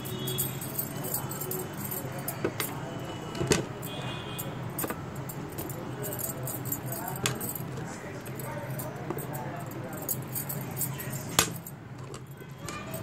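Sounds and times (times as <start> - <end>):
light clinking and jingling: 0.0 - 13.0.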